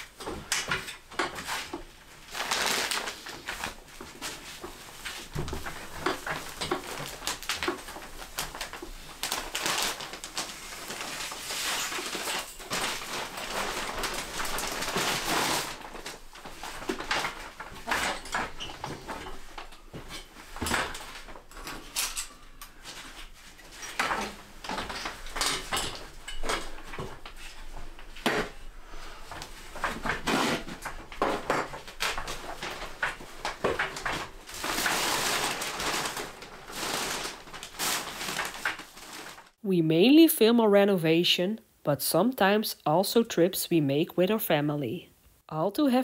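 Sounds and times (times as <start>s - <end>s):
irregular knocks and clatter: 3.9s - 9.0s.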